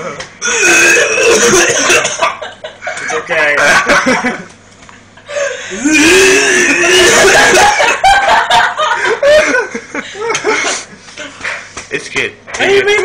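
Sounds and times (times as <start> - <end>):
person laughing loudly: 6.4 - 10.8.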